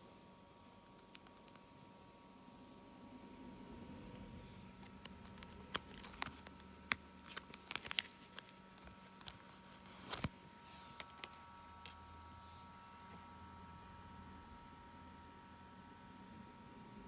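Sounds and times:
plastic binder pages turning: 0:00.8 - 0:01.7, 0:04.7 - 0:12.0
plastic clicks and crinkles: 0:00.8 - 0:01.7, 0:04.8 - 0:12.0.

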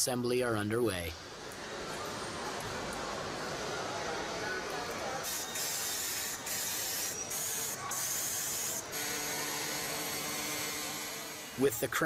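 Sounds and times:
compressed air hissing: 0:05.2 - 0:11.6.

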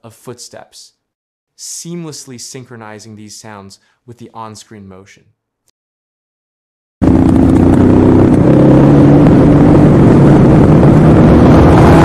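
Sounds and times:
motorcycle engine accelerating: 0:07.0 - 0:12.0.

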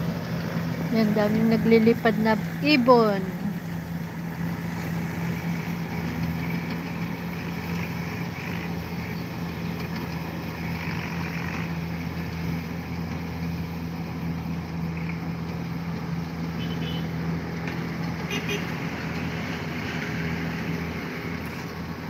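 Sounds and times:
combine harvester engine drone: 0:00.0 - 0:22.0.

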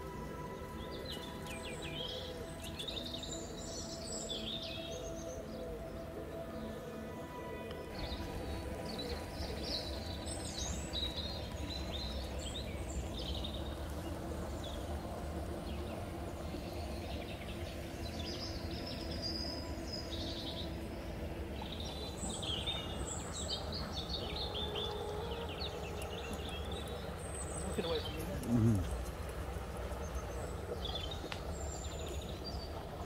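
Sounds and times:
low background rumble: 0:00.0 - 0:33.0
small birds chirping: 0:07.8 - 0:33.0.

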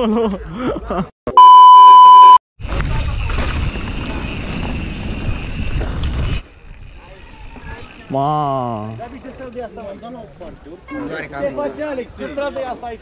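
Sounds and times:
loud electronic beep: 0:01.3 - 0:02.4
bike tyres on dirt path: 0:02.6 - 0:13.0.

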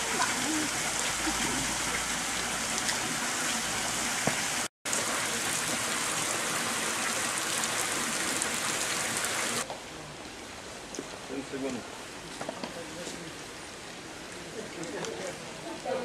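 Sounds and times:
water hissing: 0:00.0 - 0:09.7.

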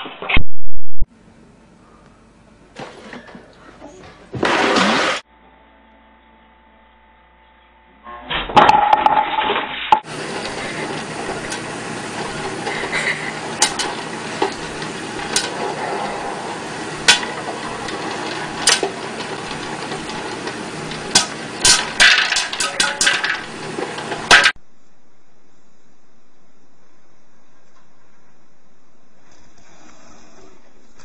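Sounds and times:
popcorn kernels popping: 0:10.0 - 0:15.8, 0:16.4 - 0:24.6
popcorn popper sizzling hiss: 0:10.0 - 0:24.6.

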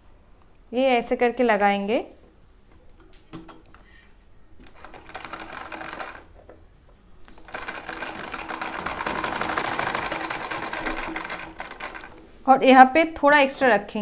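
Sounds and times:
sewing machine needle clatter: 0:04.6 - 0:06.3, 0:07.3 - 0:12.2.

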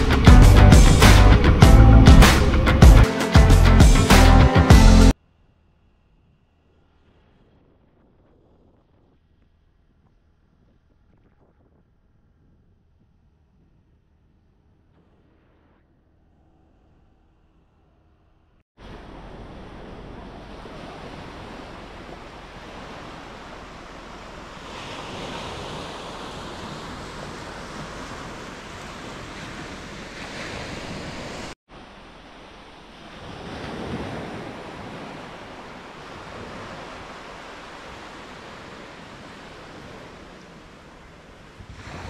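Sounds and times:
sea waves breaking on beach: 0:18.8 - 0:42.0
wind buffeting microphone: 0:32.8 - 0:42.0.

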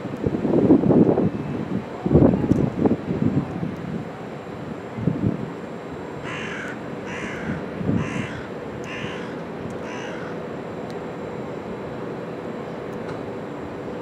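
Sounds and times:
crow cawing: 0:06.2 - 0:10.4.

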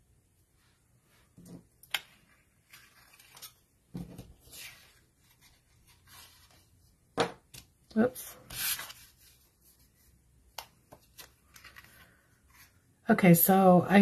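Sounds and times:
paper rustling: 0:02.2 - 0:06.8, 0:08.4 - 0:10.1, 0:10.9 - 0:12.8.

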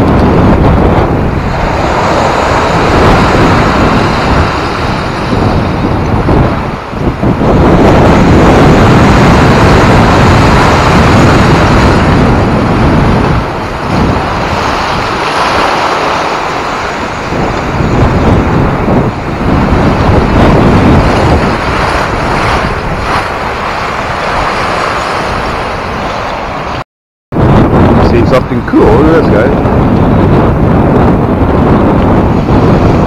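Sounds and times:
wind rumble on microphone: 0:00.0 - 0:33.0
waves surging through slush ice: 0:01.3 - 0:05.7, 0:08.1 - 0:26.8.

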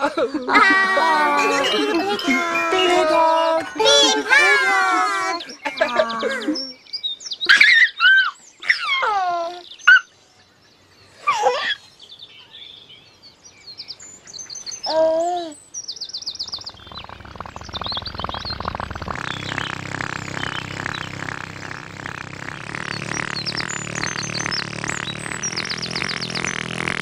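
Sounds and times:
baby cooing and giggling: 0:00.5 - 0:06.6
low buzzing musical drone: 0:00.6 - 0:06.6, 0:16.6 - 0:27.0
high bird chirps: 0:01.3 - 0:08.2, 0:15.7 - 0:27.0.

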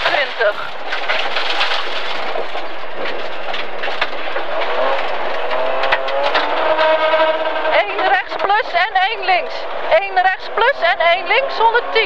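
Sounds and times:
sharp knocks from road surface: 0:00.0 - 0:08.6
car engine running under load: 0:00.0 - 0:12.0
loud road noise: 0:00.0 - 0:12.0.

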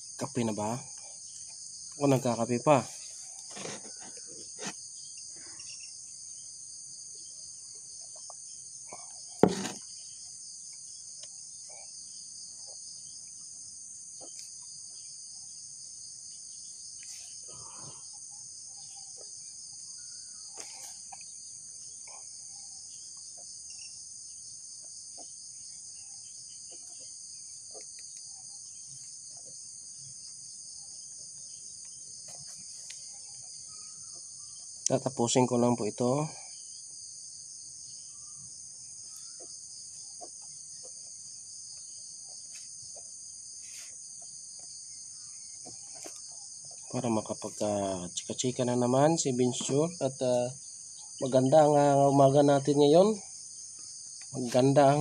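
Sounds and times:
insect chorus drone: 0:00.0 - 0:55.0
sharp knock: 0:09.4 - 0:09.8.

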